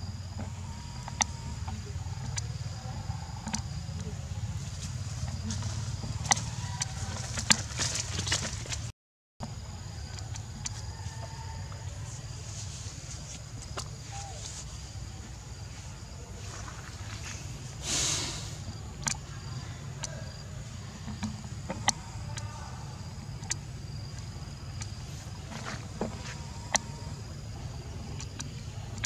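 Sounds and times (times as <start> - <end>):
low rumble: 0.0 - 8.9.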